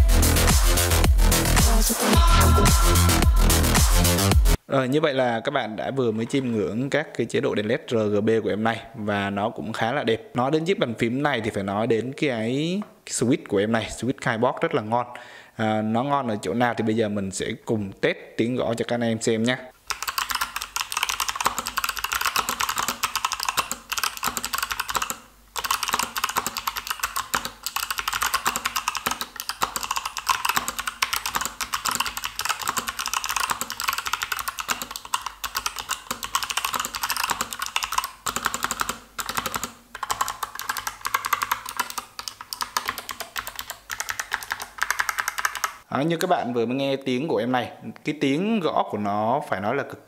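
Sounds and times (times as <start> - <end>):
fast typing on mechanical keyboard: 19.8 - 45.9.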